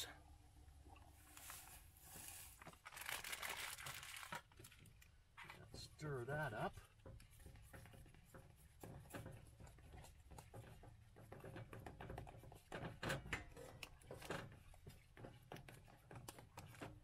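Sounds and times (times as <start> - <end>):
spoon stirring in steel pot: 4.5 - 17.0.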